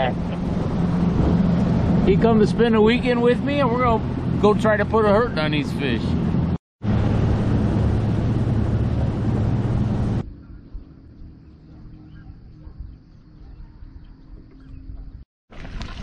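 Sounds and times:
wind and water rushing: 0.0s - 10.2s
outboard motor running: 0.0s - 13.2s.

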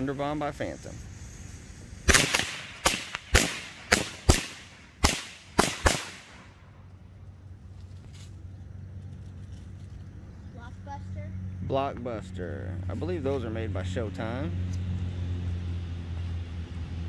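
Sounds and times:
firecrackers banging: 0.9s - 6.6s.

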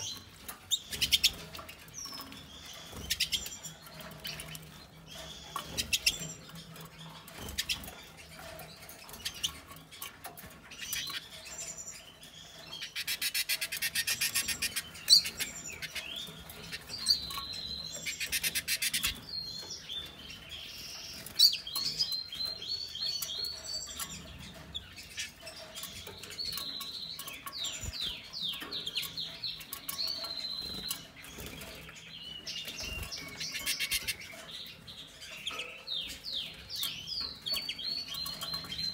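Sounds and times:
birds chirping and twittering: 0.0s - 38.9s.

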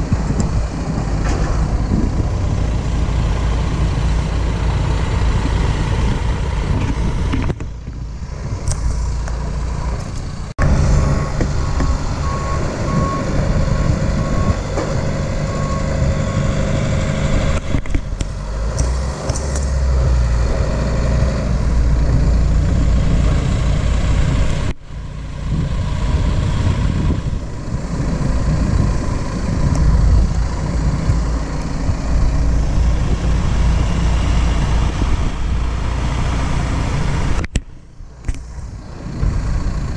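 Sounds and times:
diesel engines running: 0.0s - 39.9s
hydraulics tipping trailer: 0.0s - 39.9s
repeated beep: 11.0s - 13.4s, 14.2s - 14.7s.

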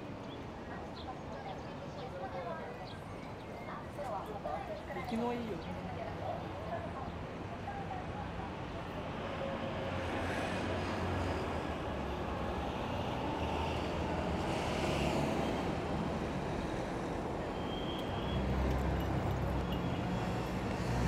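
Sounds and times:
passing traffic rumble: 8.0s - 21.0s.

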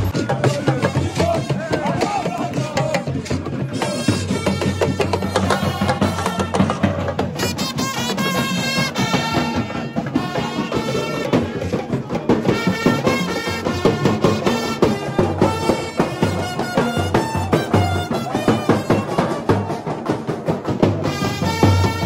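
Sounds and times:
horn melody: 3.8s - 11.6s, 12.4s - 19.8s, 21.0s - 22.0s.

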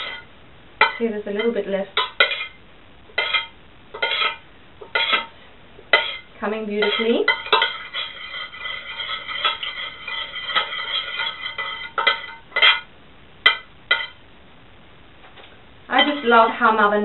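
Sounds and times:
metal spoon scraping a pot: 0.0s - 2.6s, 3.2s - 5.3s, 5.9s - 14.2s, 16.0s - 16.4s
spoon clinking against pot: 6.8s - 14.2s.

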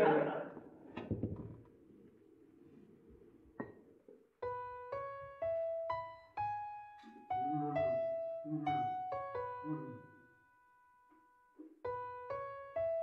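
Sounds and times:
faint knock: 1.0s - 1.7s
slow piano melody: 4.4s - 13.0s.

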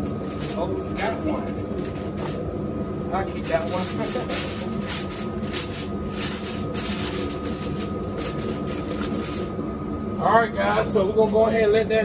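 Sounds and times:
aluminium foil crinkling: 0.0s - 2.4s, 3.4s - 9.5s
steady hum: 0.0s - 12.0s.

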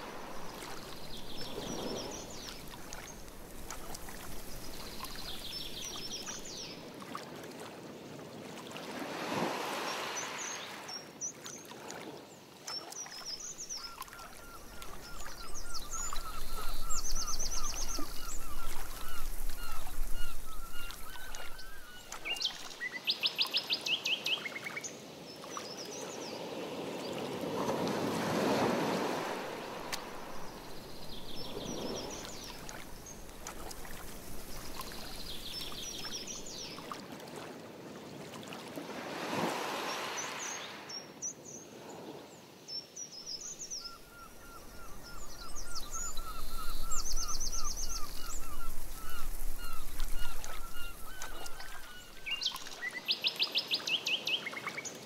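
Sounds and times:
canoe paddle swishing through water: 0.0s - 22.9s, 26.6s - 40.9s, 44.4s - 53.0s
birds chirping and trilling: 13.4s - 22.6s, 43.2s - 53.6s.

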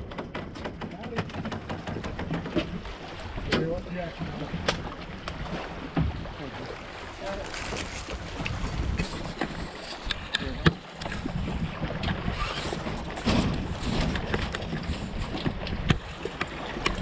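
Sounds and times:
sharp knocks: 0.0s - 2.8s
wind buffeting microphone: 0.0s - 17.0s.

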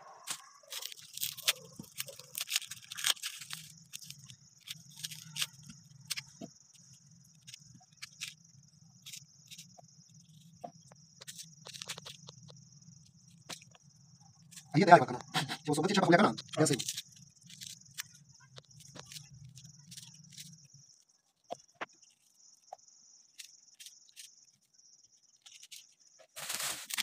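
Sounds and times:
crickets chirring: 0.0s - 27.0s.

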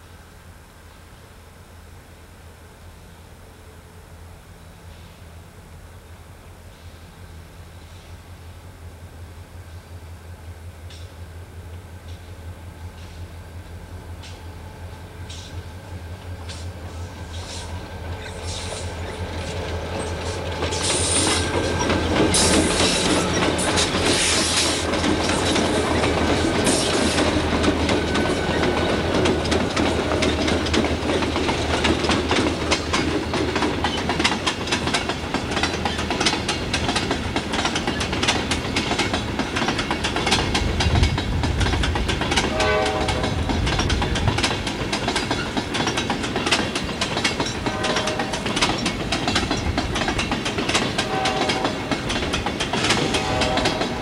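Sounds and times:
diesel locomotives passing: 0.0s - 54.0s
wheels clacking over rail joints: 15.2s - 54.0s.

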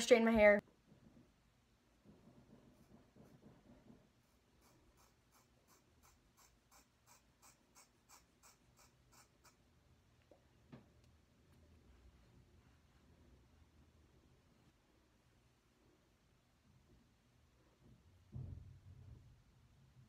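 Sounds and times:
soft knock: 18.3s - 18.8s.

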